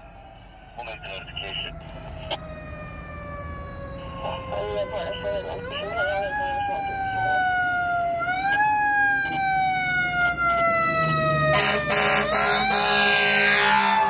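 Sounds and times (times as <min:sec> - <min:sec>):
fire engine siren wailing: 0:00.0 - 0:14.0
air horn blasts: 0:11.5 - 0:14.0.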